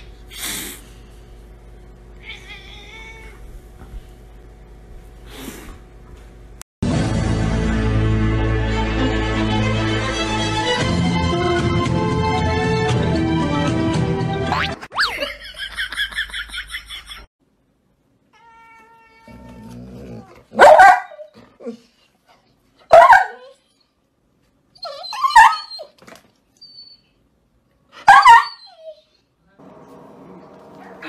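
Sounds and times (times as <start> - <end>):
dog barking: 20.5 - 21.3, 22.9 - 23.4, 28.0 - 28.6.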